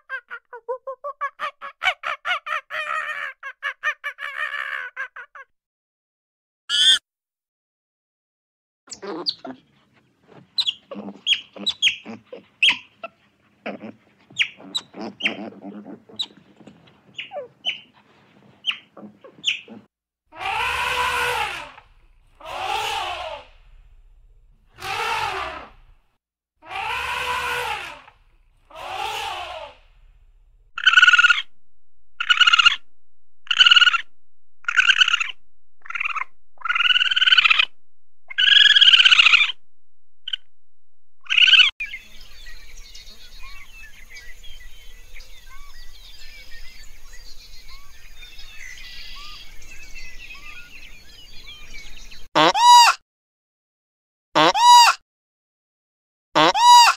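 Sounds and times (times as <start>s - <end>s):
animal chirps and squeaks: 8.9s - 9.6s, 10.5s - 19.9s, 30.8s - 31.5s, 32.2s - 32.8s, 33.5s - 37.7s, 38.3s - 39.6s, 41.2s - 42.1s
short repeated animal calls: 18.7s - 23.8s, 24.7s - 25.9s, 26.6s - 30.2s, 30.8s - 31.5s, 32.2s - 32.8s, 33.5s - 39.6s
long drawn-out animal calls: 19.0s - 23.8s, 24.7s - 25.8s, 26.6s - 30.1s, 33.5s - 37.7s, 38.3s - 39.6s.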